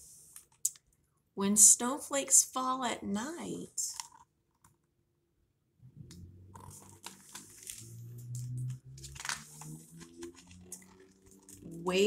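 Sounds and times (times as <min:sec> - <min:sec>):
book pages rustling: 0:06.6 - 0:11.7.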